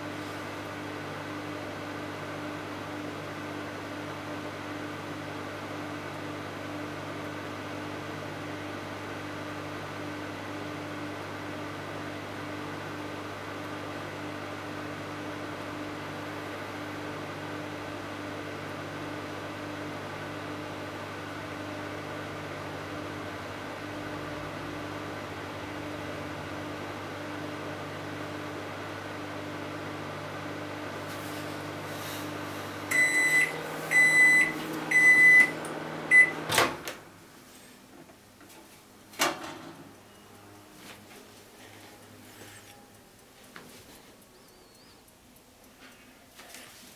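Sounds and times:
microwave oven humming: 0.0s - 46.8s
microwave beeps: 32.9s - 36.5s.

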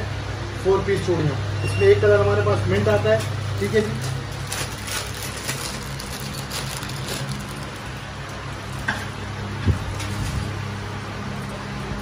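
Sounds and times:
plastic packaging crinkling: 3.4s - 8.1s.

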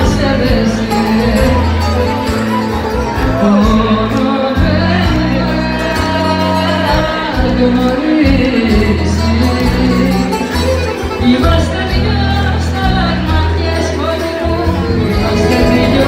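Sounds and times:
woman singing into a microphone: 0.0s - 2.2s, 3.2s - 16.0s
bouzouki: 0.0s - 16.0s
live band playing: 0.0s - 16.0s.

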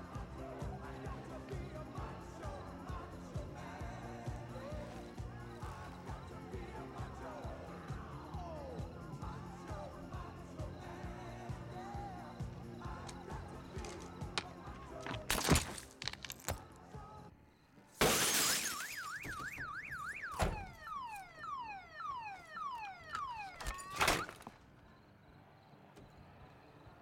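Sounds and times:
car alarm: 10.7s - 15.8s, 17.6s - 27.0s
car window smashing: 15.0s - 16.6s, 18.0s - 21.0s, 23.1s - 24.5s.

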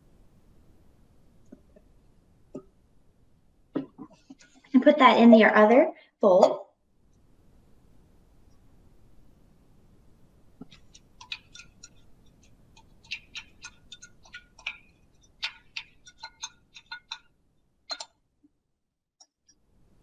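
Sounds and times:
spoon scraping and tapping cup: 3.8s - 4.7s, 10.6s - 18.2s.

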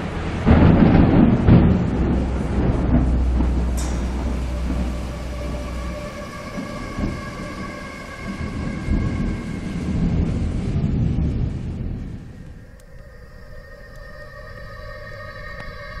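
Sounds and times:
deep rumble: 0.0s - 16.0s
droning held chord: 2.8s - 10.8s, 12.0s - 16.0s.

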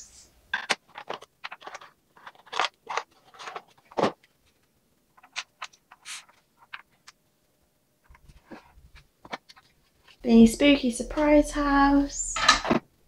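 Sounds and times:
plastic toys clicking and tapping: 0.5s - 4.1s, 5.1s - 7.2s.

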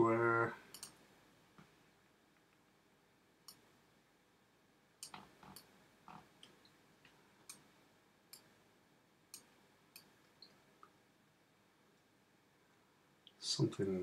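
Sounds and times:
computer mouse clicks: 0.7s - 1.0s.

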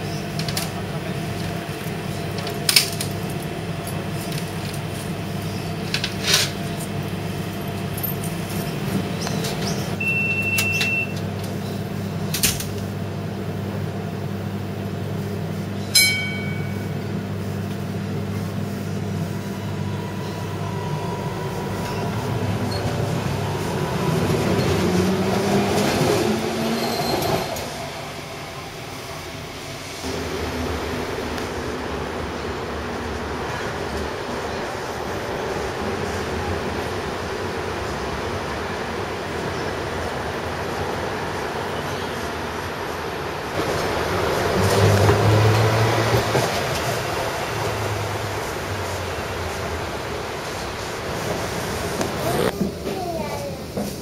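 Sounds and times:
tram electrical hum: 0.0s - 54.0s
tram motor and wheel noise: 0.0s - 54.0s
short high beep: 10.0s - 11.2s
sharp ding: 15.9s - 17.0s.

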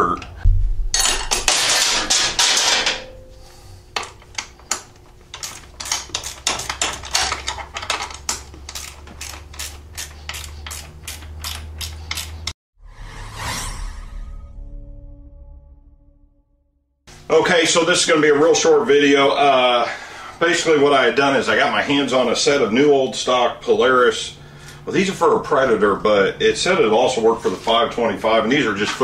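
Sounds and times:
ratchet wrench clicking: 4.0s - 12.5s.

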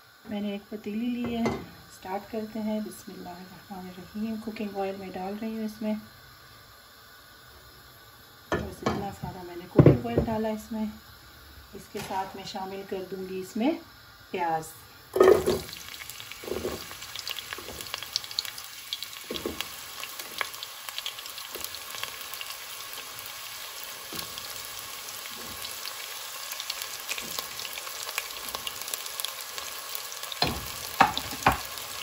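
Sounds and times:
onion sizzling in hot oil: 0.0s - 32.0s
oil crackling and popping: 15.3s - 32.0s.

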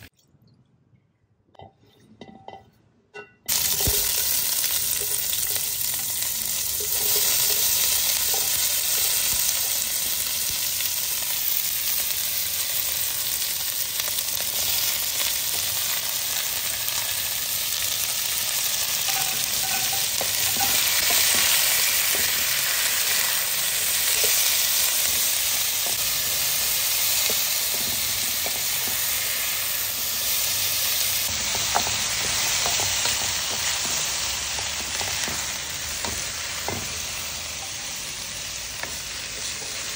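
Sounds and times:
spatula scraping wok: 3.5s - 9.7s, 17.0s - 39.9s
vegetables sizzling in hot oil: 3.5s - 39.9s.

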